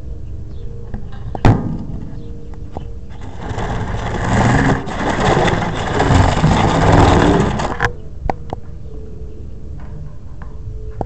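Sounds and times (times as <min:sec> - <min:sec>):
scraping against metal mesh: 0:03.1 - 0:07.9.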